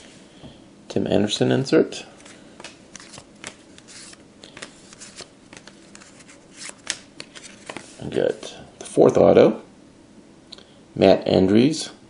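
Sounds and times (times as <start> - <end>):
cards sliding and flicking: 2.2 - 8.4.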